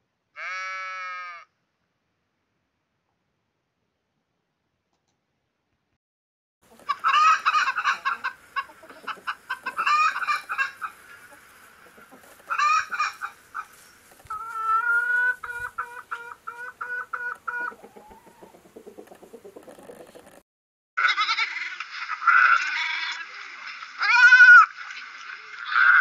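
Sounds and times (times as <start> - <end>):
chickens clucking and calling: 6.6 - 20.4.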